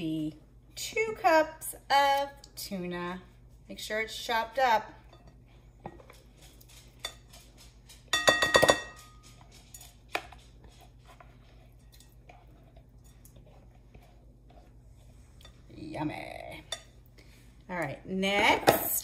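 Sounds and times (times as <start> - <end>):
bowl clinking on glass bowl: 8.1 - 9.2
spatula scraping glass bowl: 9.7 - 16.1.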